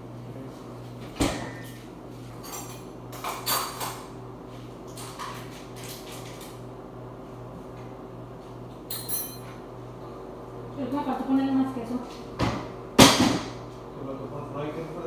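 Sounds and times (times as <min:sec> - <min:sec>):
dishes and utensils clinking: 0:08.9 - 0:09.5.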